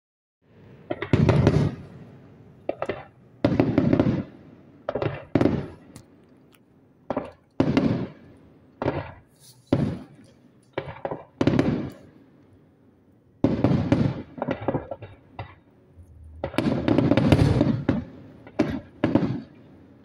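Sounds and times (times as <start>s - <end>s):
fireworks shells bursting: 2.7s - 6.2s, 7.1s - 12.1s, 16.2s - 19.6s.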